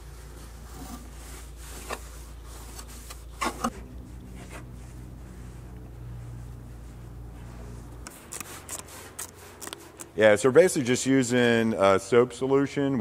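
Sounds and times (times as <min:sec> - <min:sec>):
towel wiping metal surface: 0:00.0 - 0:10.2
low hum: 0:03.6 - 0:08.8.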